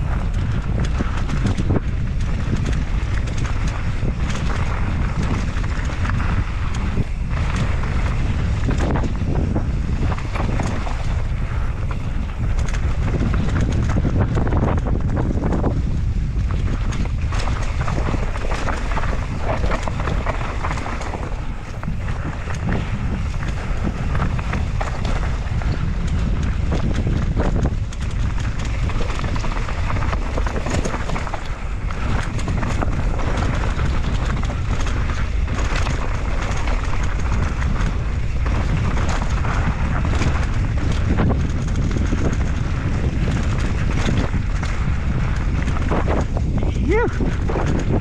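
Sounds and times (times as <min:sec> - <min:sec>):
bike rattles and knocks: 0:00.0 - 0:48.0
tyres rolling on dirt and rock: 0:00.0 - 0:48.0
wind rush on microphone: 0:00.0 - 0:48.0.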